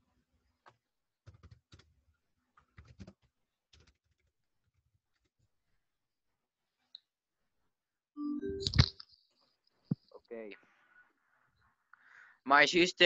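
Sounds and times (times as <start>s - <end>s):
faint keyboard typing: 0.7s - 4.3s.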